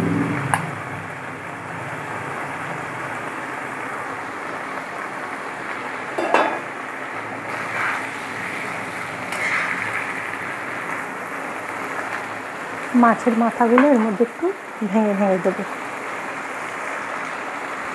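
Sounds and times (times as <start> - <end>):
cooking hiss: 0.0 - 17.9
metal bowl clinking on pan: 6.2 - 6.7
metal spatula scraping: 9.3 - 10.1.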